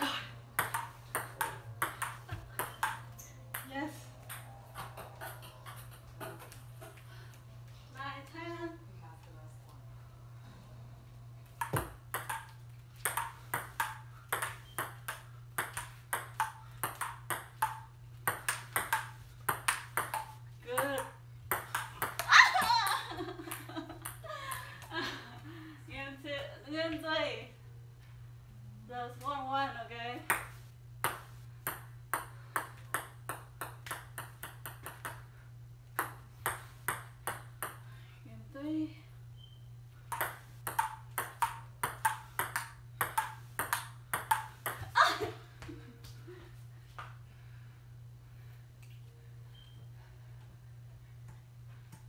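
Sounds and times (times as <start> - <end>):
table tennis ball hits: 0.6 - 3.7, 11.6 - 24.6, 30.3 - 35.3, 36.0 - 37.8, 40.1 - 45.0.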